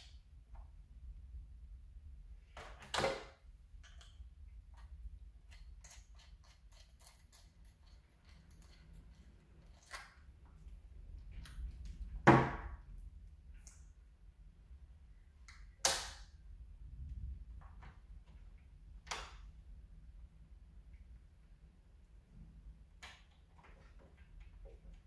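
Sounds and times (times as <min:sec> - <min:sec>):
small tools clicking and tapping: 0:03.8 - 0:10.2.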